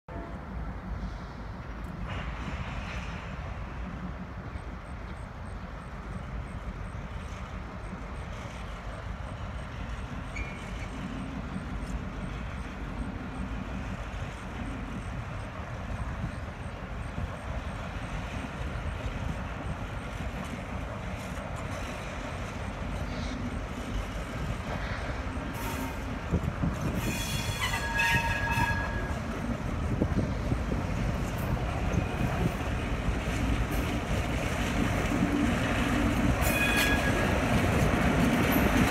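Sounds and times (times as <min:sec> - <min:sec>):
diesel locomotive rumbling: 0:00.1 - 0:38.9
railcars clanking: 0:00.1 - 0:38.9
wheel squeals: 0:10.2 - 0:11.9, 0:26.8 - 0:29.4, 0:36.4 - 0:37.8.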